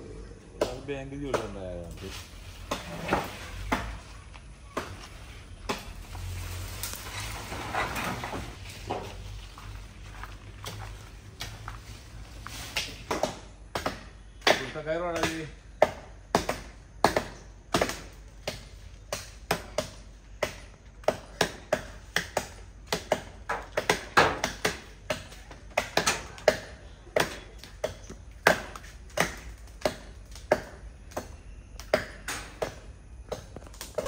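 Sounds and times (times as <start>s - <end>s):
machete chopping branch: 12.6s - 34.0s.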